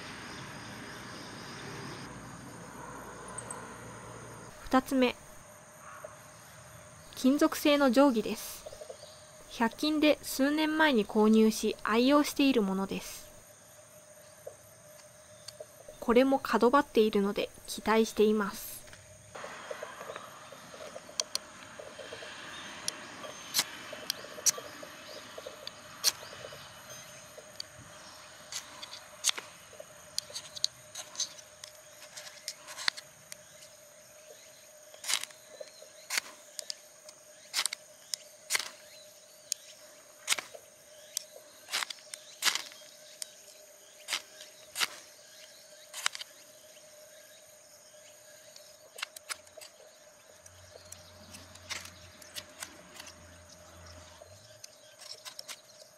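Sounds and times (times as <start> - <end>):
ruler scraping fire-starter rod: 28.5 - 29.5, 30.2 - 33.1, 38.5 - 38.8, 41.7 - 43.3.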